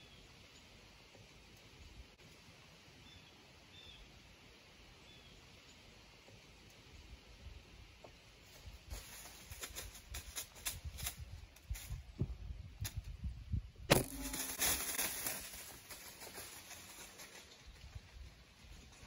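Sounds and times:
leaves rustling: 0:07.5 - 0:12.2, 0:13.9 - 0:19.0
deer steps crunching dry leaves: 0:08.4 - 0:12.2, 0:13.9 - 0:19.0.

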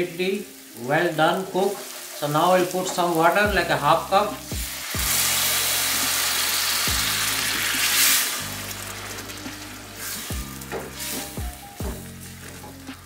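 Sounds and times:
hot oil sizzling in saucepan: 0:00.0 - 0:13.0.

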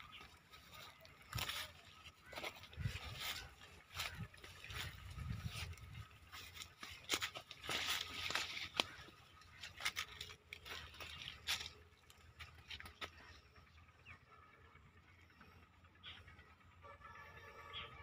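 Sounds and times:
plants rustling and crackling: 0:00.0 - 0:13.4
footsteps on dry ground: 0:00.0 - 0:13.7.

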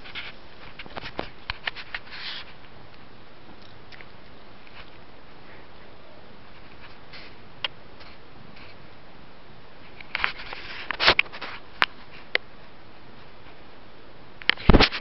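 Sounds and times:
rustling: 0:00.0 - 0:08.9, 0:09.8 - 0:12.4
steady low hiss: 0:00.0 - 0:15.0.

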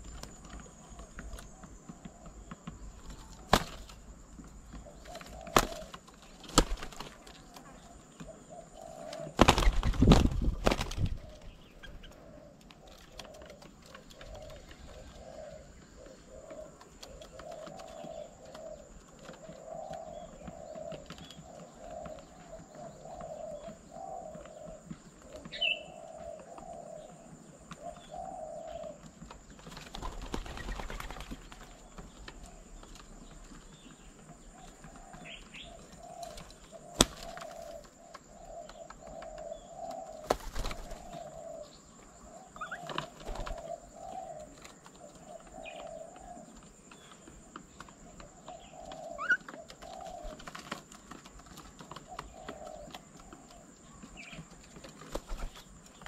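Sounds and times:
doves cooing: 0:00.0 - 0:56.0
wings flapping: 0:03.0 - 0:07.8, 0:08.9 - 0:15.5, 0:29.1 - 0:33.8, 0:34.7 - 0:38.0, 0:40.0 - 0:41.4, 0:42.6 - 0:45.7, 0:47.7 - 0:53.5, 0:54.2 - 0:56.0.

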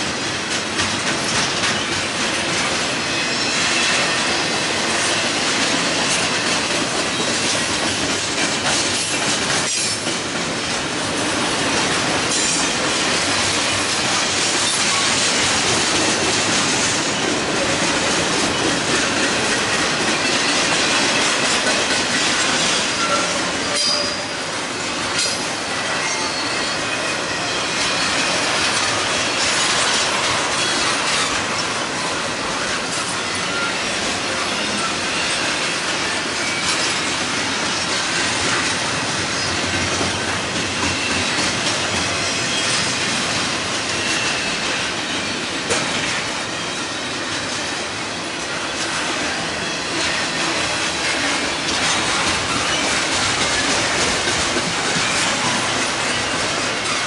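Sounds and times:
freight train rolling past: 0:00.0 - 0:57.0
faint high wheel squeals: 0:22.8 - 0:24.5, 0:25.3 - 0:28.5, 0:32.6 - 0:36.9.

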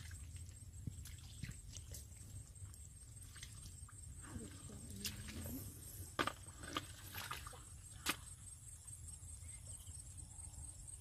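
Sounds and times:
footsteps splashing in mud: 0:00.0 - 0:03.8, 0:06.2 - 0:08.3.

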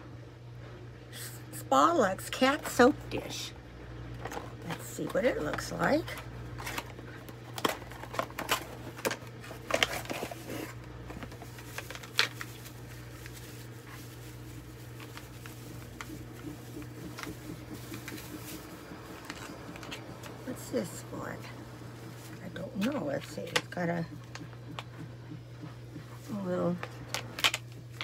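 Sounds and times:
low hum: 0:00.0 - 0:28.0
cardboard packaging rustling: 0:04.2 - 0:24.9.

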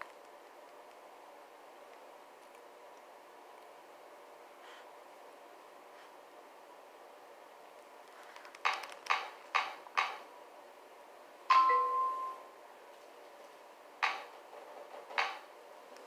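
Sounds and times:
bell-like ding: 0:11.5 - 0:12.5.

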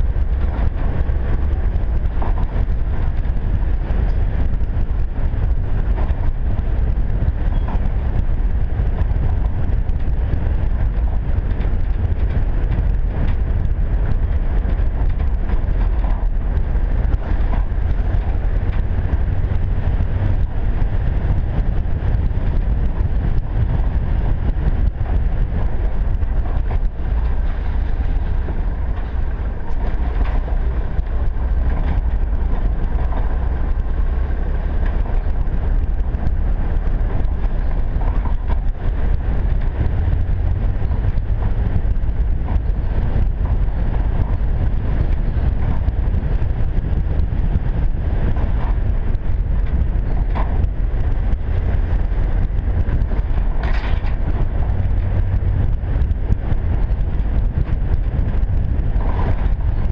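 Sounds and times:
vehicle engine and tyres rumbling: 0:00.0 - 0:59.9
knocks and rattles from bumps: 0:00.1 - 0:59.9.

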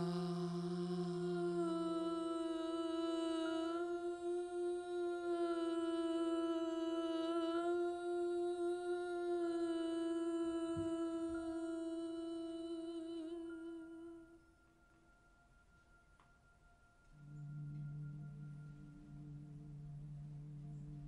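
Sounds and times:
man singing a long note: 0:00.0 - 0:14.4.

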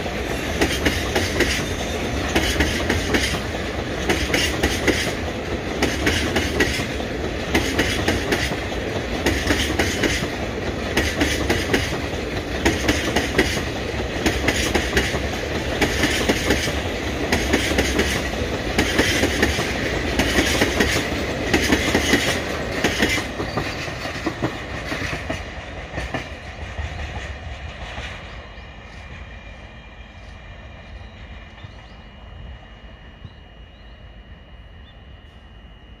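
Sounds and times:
train wheels clattering over rails: 0:00.0 - 0:31.0
faint steady high tones: 0:28.5 - 0:36.0.

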